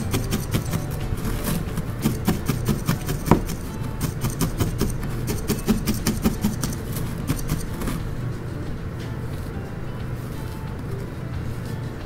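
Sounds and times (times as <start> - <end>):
felting needle poking wool: 0.0 - 8.4.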